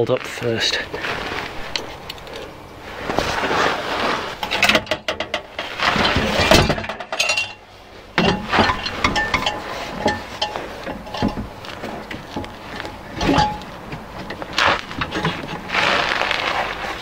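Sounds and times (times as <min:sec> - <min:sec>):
metal exhaust clinking and scraping: 0:00.0 - 0:17.0.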